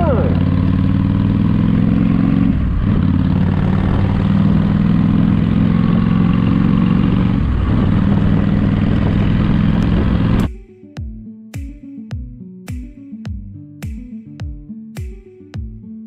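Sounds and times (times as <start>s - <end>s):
motorcycle engine running: 0.0s - 10.6s
wind rushing past microphone: 7.1s - 10.5s.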